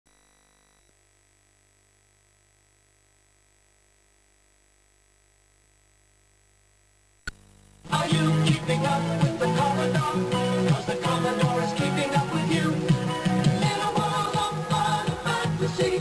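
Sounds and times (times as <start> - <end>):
faint steady hum: 0.1 - 16.0.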